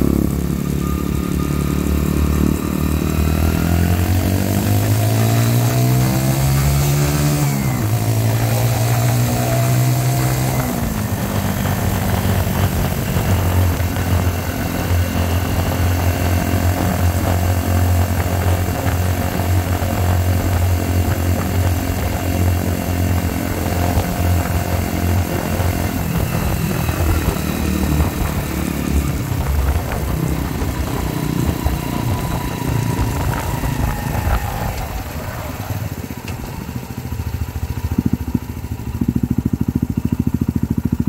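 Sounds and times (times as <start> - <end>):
motorcycle engine revving: 0.0 - 41.0
wind noise on microphone: 3.3 - 35.6.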